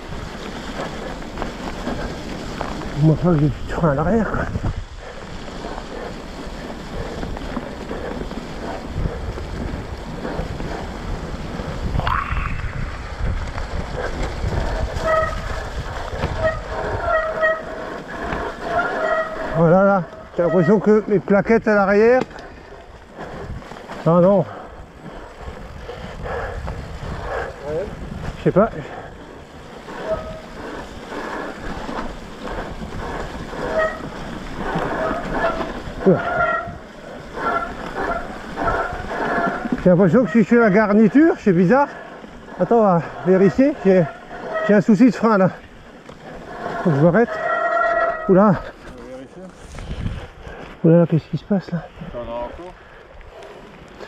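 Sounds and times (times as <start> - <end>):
wind on microphone: 0.0 - 20.3, 22.5 - 39.9, 49.6 - 50.6
tyres rumbling on dirt trail: 0.0 - 54.0
bike disc brake squealing: 14.8 - 21.0, 29.8 - 41.5, 42.5 - 45.6, 46.2 - 48.9.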